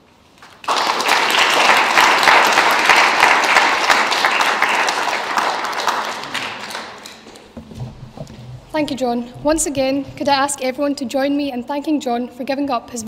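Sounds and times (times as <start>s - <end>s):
audience applauding: 0.4s - 7.5s.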